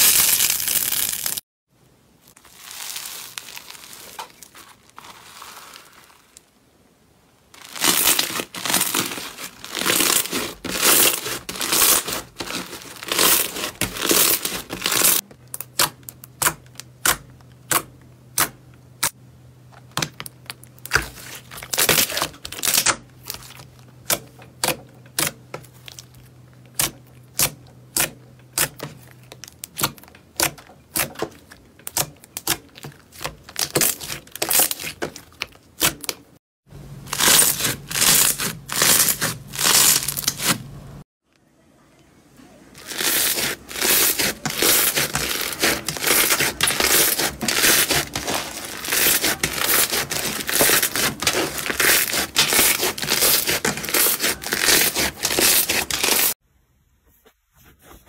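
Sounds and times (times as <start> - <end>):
slime crackling: 2.3 - 6.6, 7.6 - 16.5, 37.1 - 40.6, 42.8 - 56.4.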